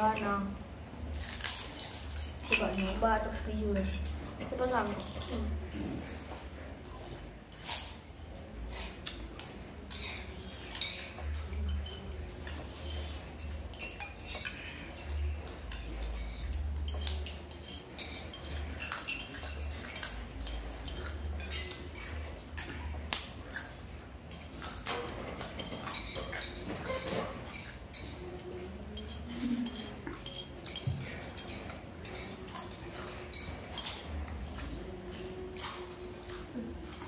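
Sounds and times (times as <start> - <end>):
spoons clinking on plates: 8.7 - 37.0.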